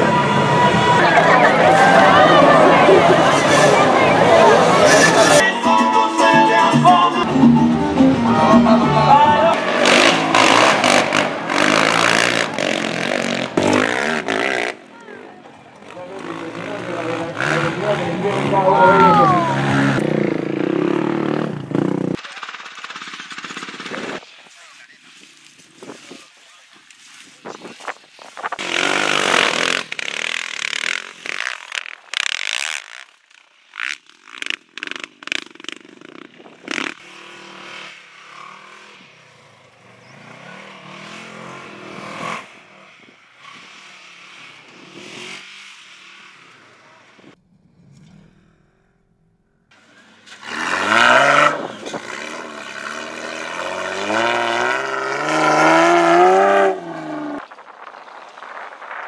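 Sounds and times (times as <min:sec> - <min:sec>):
truck engine revving hard: 0:00.0 - 0:05.4, 0:07.5 - 0:14.8, 0:16.2 - 0:22.2, 0:28.6 - 0:31.3, 0:49.9 - 0:57.4
off-road vehicle engines running: 0:00.0 - 0:05.5, 0:06.5 - 0:48.5, 0:49.7 - 0:59.0.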